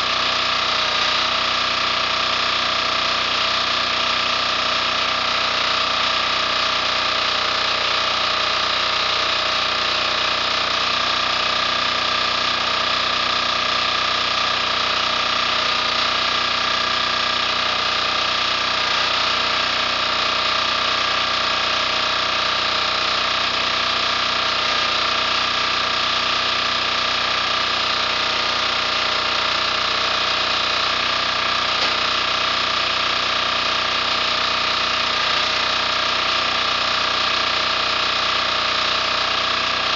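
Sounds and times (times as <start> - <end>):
diesel engine running steadily: 0.0 - 39.9.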